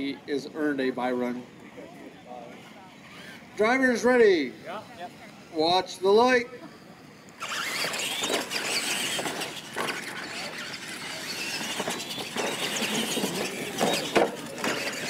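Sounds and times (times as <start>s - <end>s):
toy truck motors whining: 3.0s - 4.9s, 6.8s - 15.0s
tyres scrabbling on dirt: 7.4s - 15.0s.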